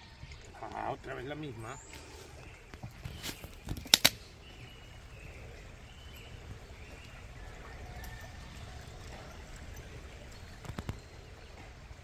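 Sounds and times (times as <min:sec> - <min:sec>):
sharp clicks: 0:03.7 - 0:04.3.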